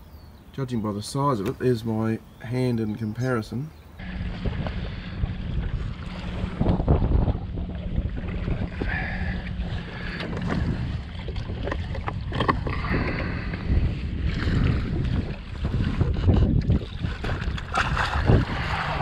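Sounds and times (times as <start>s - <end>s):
wind buffeting microphone: 3.9s - 19.0s
knocks and splashes: 4.0s - 19.0s
water sloshing against hull: 4.0s - 19.0s.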